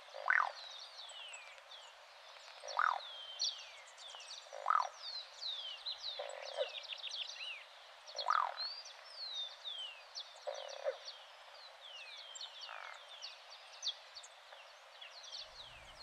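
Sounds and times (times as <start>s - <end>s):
dove croaking: 0.1s - 0.6s, 2.6s - 3.0s, 4.5s - 4.9s, 8.2s - 8.6s.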